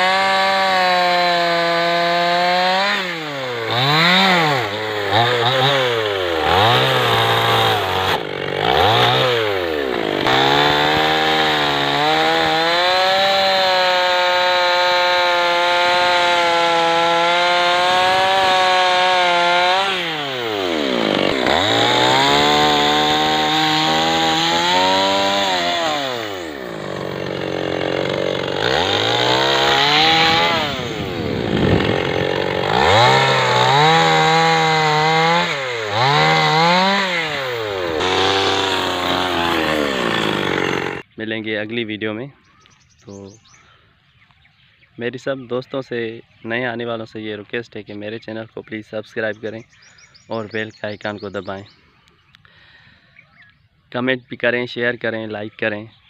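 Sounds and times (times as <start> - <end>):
chainsaw cutting branches: 0.0 - 41.1.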